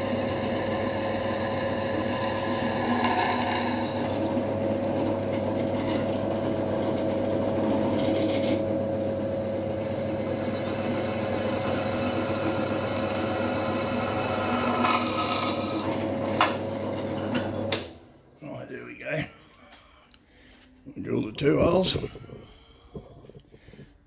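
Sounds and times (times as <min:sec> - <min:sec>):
drill bit scraping metal: 0:00.0 - 0:06.2, 0:09.8 - 0:17.6
drill press motor hum: 0:00.0 - 0:18.0.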